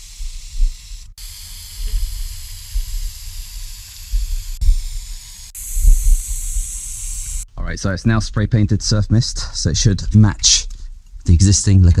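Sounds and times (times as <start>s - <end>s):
spray-paint can hissing: 0.0s - 7.5s.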